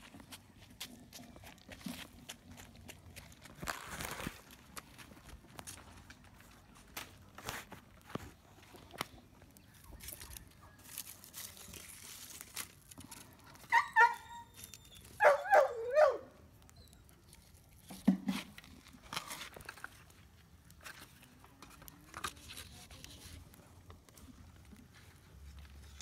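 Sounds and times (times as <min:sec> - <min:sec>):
dog whining: 0:13.7 - 0:16.3.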